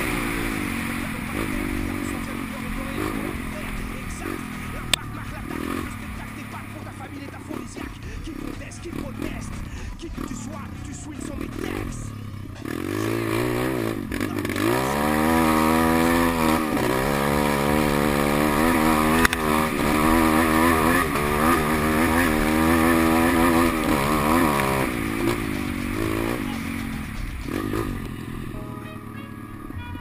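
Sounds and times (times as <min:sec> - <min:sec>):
motorbike engine revving: 0:00.0 - 0:30.0
sharp click: 0:19.2 - 0:19.4.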